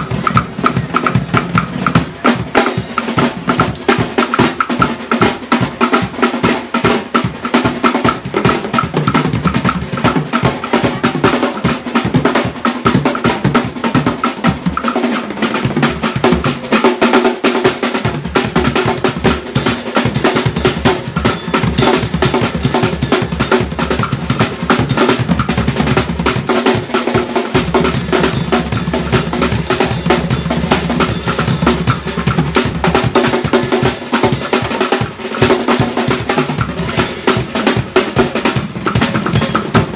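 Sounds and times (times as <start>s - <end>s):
snare drum rolls: 0.0s - 39.9s
bass drum: 27.6s - 33.7s.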